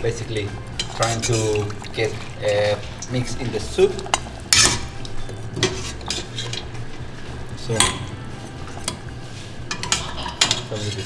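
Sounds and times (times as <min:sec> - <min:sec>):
metal ladle scraping a pot: 0:00.7 - 0:11.0
ladle knocking on pot: 0:07.8 - 0:08.2.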